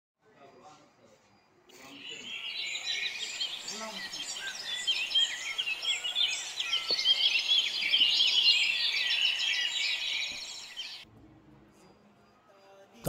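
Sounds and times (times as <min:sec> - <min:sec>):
birds chirping and singing: 0:01.7 - 0:11.1.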